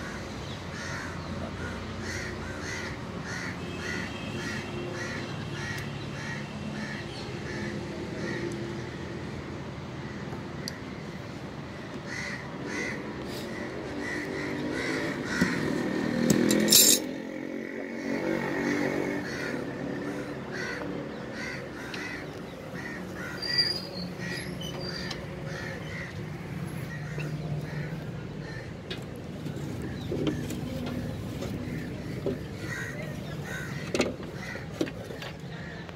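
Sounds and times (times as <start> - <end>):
crows cawing: 0.0 - 9.0, 10.0 - 16.3, 17.8 - 35.9
sharp scrape or clatter: 16.5 - 17.1.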